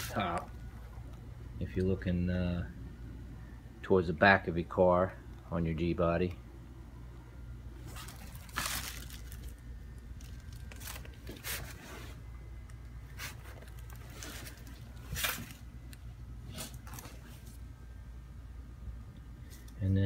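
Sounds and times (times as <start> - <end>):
low room hum: 0.0 - 20.0
handling scrapes and rustles: 7.8 - 9.5, 10.7 - 12.3, 13.1 - 15.7.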